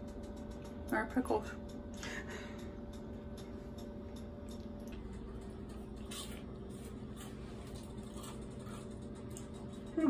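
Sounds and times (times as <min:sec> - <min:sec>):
steady background hum: 0:00.0 - 0:10.0
crunchy chewing: 0:04.2 - 0:10.0.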